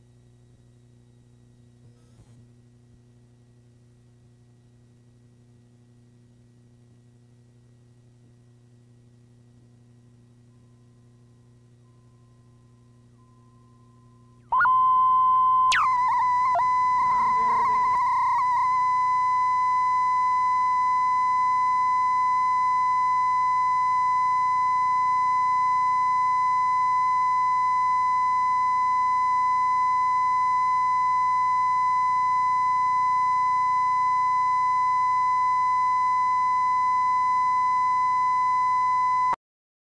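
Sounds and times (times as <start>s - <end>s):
steady test tone: 13.2s - 21.5s.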